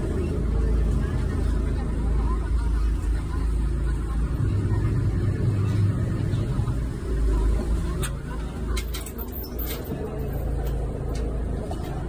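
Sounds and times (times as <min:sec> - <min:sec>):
ferry engine running low: 0:00.0 - 0:12.0.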